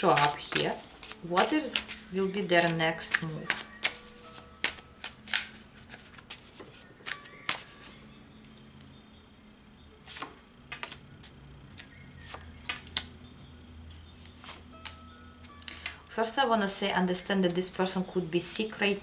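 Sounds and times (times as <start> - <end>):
cards snapping and tapping on table: 2.6 - 4.0, 4.6 - 5.6, 10.2 - 11.0.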